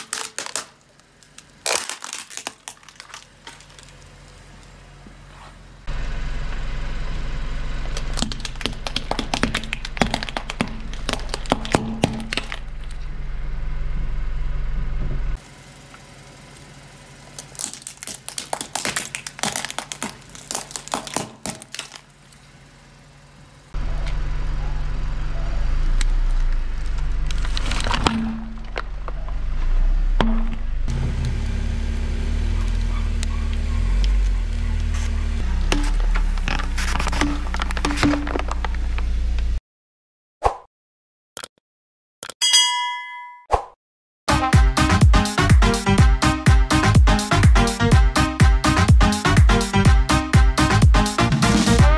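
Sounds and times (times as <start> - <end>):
tyre crushing plastic and candy: 0.0 - 4.7, 8.0 - 13.0, 17.3 - 22.3, 26.3 - 29.4, 35.6 - 38.9
low rumble: 5.8 - 15.4, 23.7 - 39.6.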